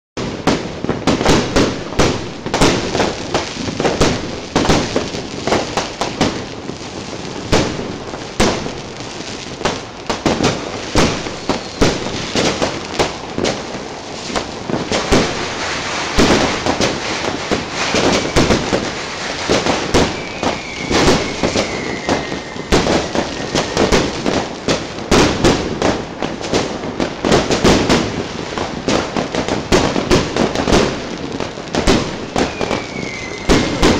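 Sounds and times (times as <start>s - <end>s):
fireworks bangs and crackling: 0.2s - 33.9s
faint descending whistles: 32.5s - 33.7s.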